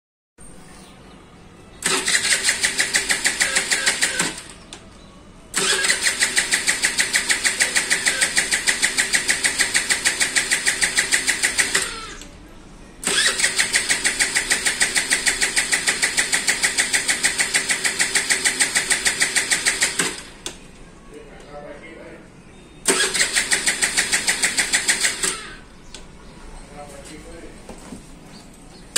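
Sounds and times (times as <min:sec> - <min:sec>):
scooter engine cranking: 0:01.8 - 0:04.8, 0:05.5 - 0:12.3, 0:13.0 - 0:20.6, 0:22.8 - 0:25.8.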